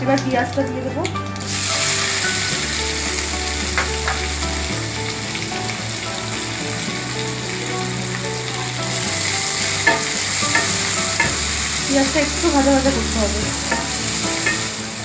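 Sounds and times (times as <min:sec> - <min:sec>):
onions sizzling in oil: 0:01.4 - 0:15.0
spatula stirring: 0:08.9 - 0:15.0.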